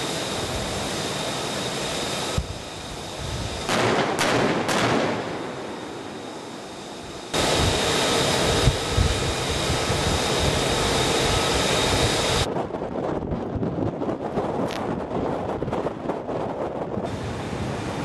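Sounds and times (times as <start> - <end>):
deck gun firing: 3.7 - 5.3
rush of wind and water: 7.4 - 18.0.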